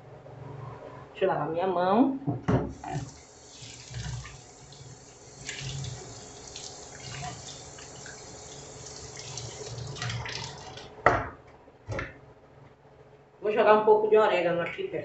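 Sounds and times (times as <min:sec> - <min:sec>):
tap running into sink: 0:02.4 - 0:11.3
water splashing on hands: 0:09.2 - 0:10.9.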